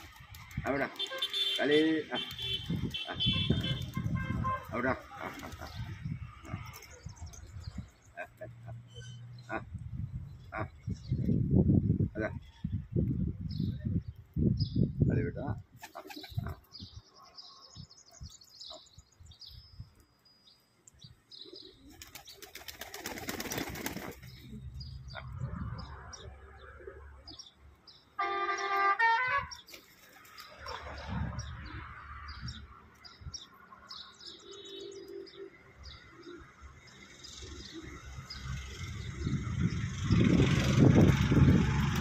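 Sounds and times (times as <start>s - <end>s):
pigeons flapping wings: 0.0s - 1.6s, 5.2s - 5.8s, 15.8s - 16.6s, 21.9s - 24.4s
small birds chirping: 12.4s - 28.2s.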